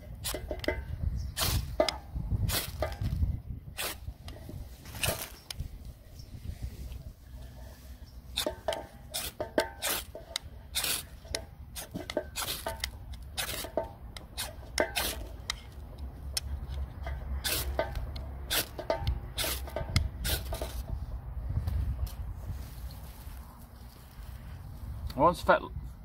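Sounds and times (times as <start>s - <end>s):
knife scraping ferro rod: 7.6s - 15.7s, 17.4s - 20.8s.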